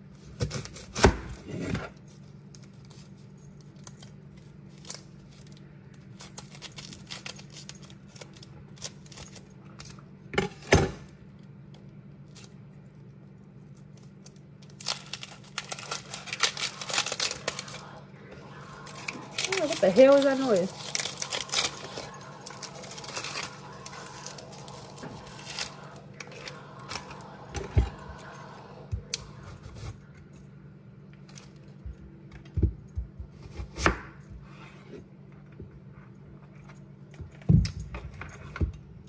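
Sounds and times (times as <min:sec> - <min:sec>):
onion skin crackling and tearing: 0:02.1 - 0:10.0, 0:13.7 - 0:18.0, 0:18.7 - 0:26.7.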